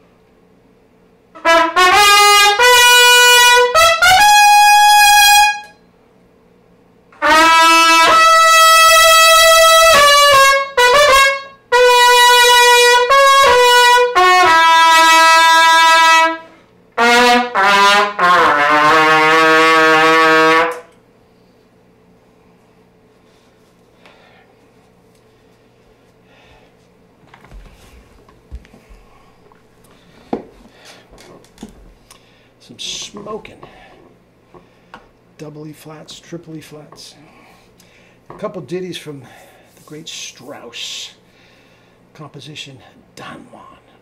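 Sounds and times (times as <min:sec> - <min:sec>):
trumpet playing held notes: 0:01.4 - 0:05.8, 0:07.2 - 0:20.9.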